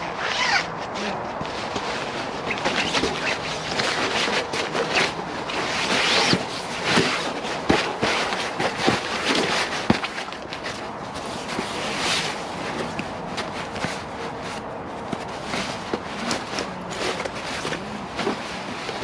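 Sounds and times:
fabric rustling and crinkling: 0:00.0 - 0:19.0.

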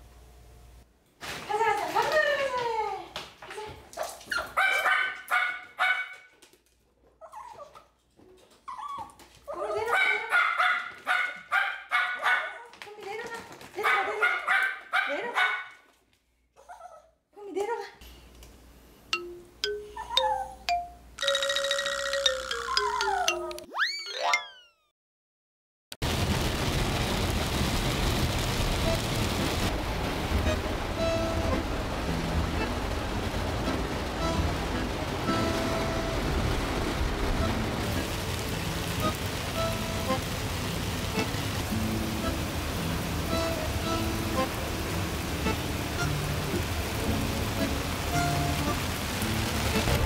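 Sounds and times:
small dog yapping: 0:04.0 - 0:06.3, 0:08.6 - 0:12.7, 0:13.8 - 0:15.7
rain and tyre spray hiss: 0:26.0 - 0:50.0.

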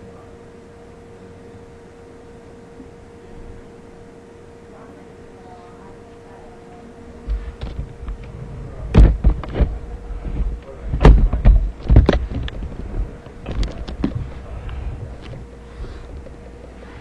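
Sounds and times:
camera handling thumps and knocks: 0:07.3 - 0:08.3, 0:08.9 - 0:14.3.

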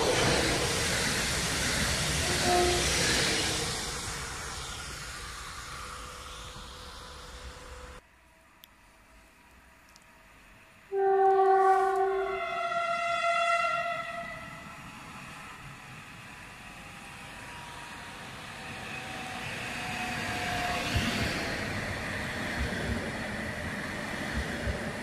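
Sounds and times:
train rumble: 0:00.0 - 0:08.0, 0:08.9 - 0:25.0
two-tone train horn: 0:02.2 - 0:02.9, 0:10.9 - 0:14.7.

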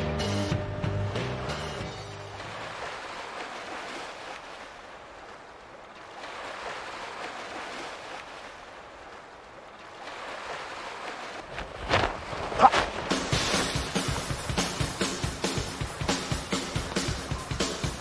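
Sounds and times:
sea surf washing: 0:00.9 - 0:18.0
music with drum hits: 0:13.0 - 0:18.0.

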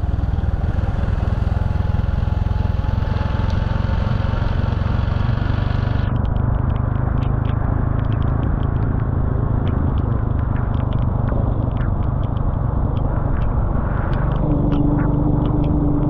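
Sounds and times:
motorcycle engine rumble: 0:00.0 - 0:16.0
wind noise: 0:05.8 - 0:16.0
light ticks: 0:06.1 - 0:15.8
steady hum: 0:07.0 - 0:16.0.

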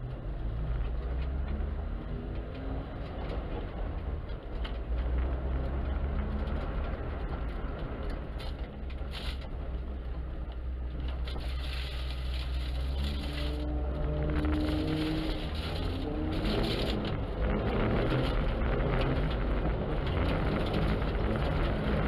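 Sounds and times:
car engine and tyres rumbling: 0:00.0 - 0:22.0
snow crunching under wheels: 0:04.8 - 0:22.0.

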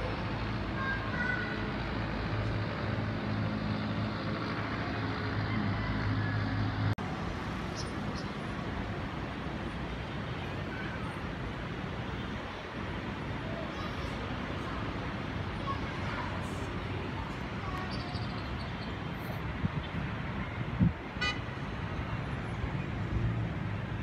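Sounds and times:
distant road traffic: 0:00.0 - 0:24.0.

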